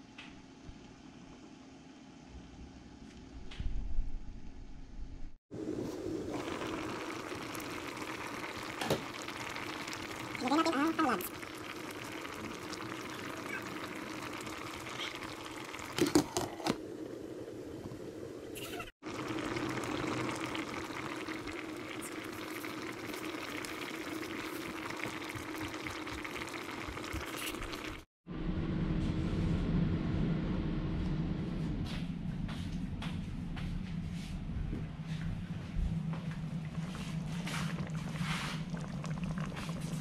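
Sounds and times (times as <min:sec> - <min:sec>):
soup bubbling in a pot: 0:05.6 - 0:28.1, 0:36.4 - 0:40.0
low steady rumble: 0:28.3 - 0:40.0.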